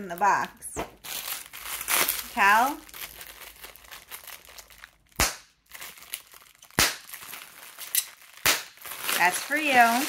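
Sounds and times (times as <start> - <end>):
bubble wrap popping: 0.0 - 10.0
plastic crinkling: 0.0 - 10.0.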